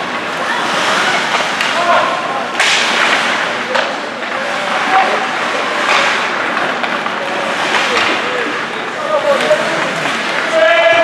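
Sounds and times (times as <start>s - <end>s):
rink hubbub: 0.0s - 11.0s
skates scraping ice: 0.0s - 11.0s
distant shouting voices: 8.4s - 11.0s.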